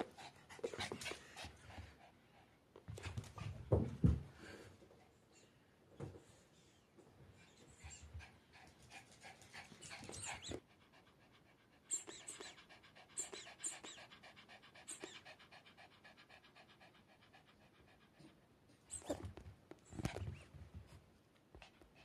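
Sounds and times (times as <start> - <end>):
dog panting rapidly: 7.8 - 18.4.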